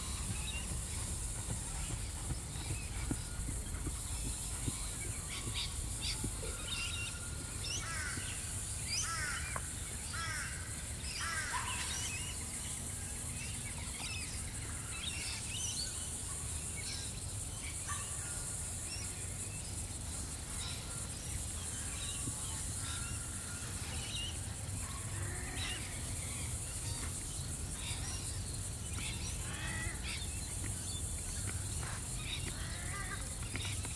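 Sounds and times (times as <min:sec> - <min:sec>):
birds chirping: 0:00.0 - 0:09.8.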